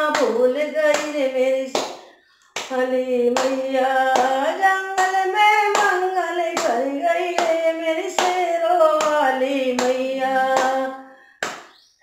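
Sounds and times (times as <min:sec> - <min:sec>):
woman singing devotional song: 0:00.0 - 0:11.6
hands clapping: 0:00.9 - 0:02.0, 0:02.6 - 0:02.8, 0:03.4 - 0:03.6, 0:05.0 - 0:06.0, 0:06.6 - 0:06.8, 0:07.4 - 0:07.6, 0:08.2 - 0:08.4, 0:09.0 - 0:09.2, 0:10.6 - 0:10.8, 0:11.4 - 0:11.8.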